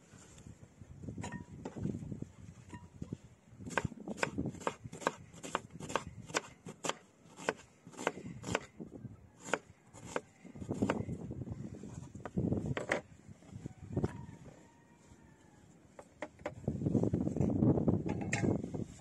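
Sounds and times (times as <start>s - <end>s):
knife chopping on a board: 3.7s - 8.7s.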